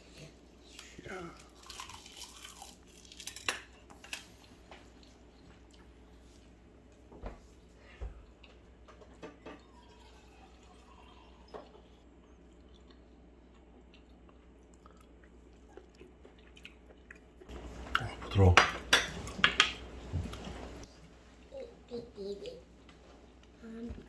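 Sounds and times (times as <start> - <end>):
low steady hum: 0.0 - 24.0
chopsticks clicking and tapping: 18.5 - 19.8.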